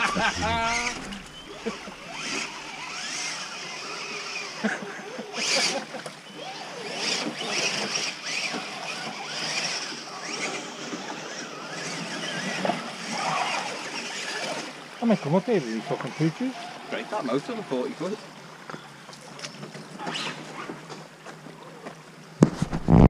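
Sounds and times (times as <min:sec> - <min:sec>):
water splashing: 0:00.0 - 0:04.6, 0:05.9 - 0:20.8
small electric motors running: 0:00.0 - 0:18.2.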